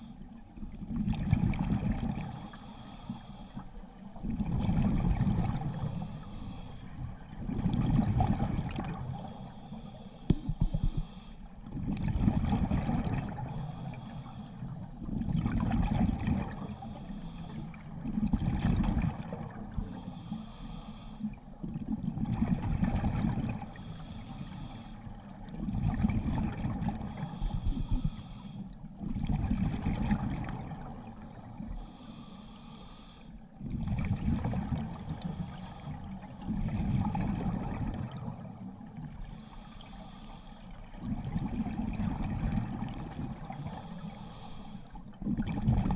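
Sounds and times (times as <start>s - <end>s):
rumbling exhaled bubbles: 0.8s - 2.2s, 4.2s - 5.6s, 7.4s - 9.0s, 11.8s - 13.5s, 15.1s - 16.6s, 18.0s - 19.8s, 21.7s - 23.7s, 25.5s - 28.2s, 29.0s - 30.8s, 33.6s - 35.0s, 36.6s - 38.4s, 45.2s - 45.9s
hissing regulator inhalations: 2.2s - 4.0s, 5.6s - 7.0s, 9.0s - 11.5s, 13.5s - 14.8s, 16.6s - 17.7s, 19.8s - 21.4s, 23.6s - 25.1s, 26.9s - 28.8s, 31.0s - 33.4s, 34.8s - 36.6s, 39.2s - 40.8s, 43.4s - 45.0s.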